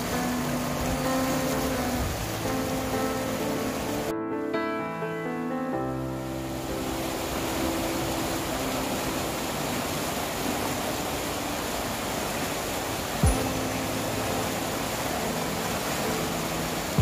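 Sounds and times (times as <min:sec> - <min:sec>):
river water roaring over weir: 0:00.0 - 0:04.1, 0:06.1 - 0:17.0.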